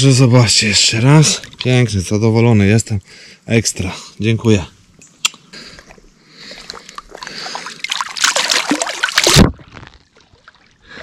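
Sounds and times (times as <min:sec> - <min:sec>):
water splashing: 0:00.8 - 0:02.1, 0:05.7 - 0:11.0.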